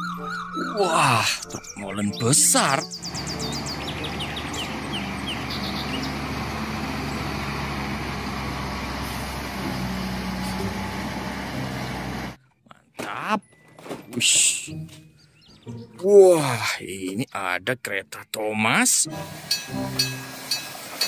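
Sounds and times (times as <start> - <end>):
diesel truck engine running: 2.9 - 12.4.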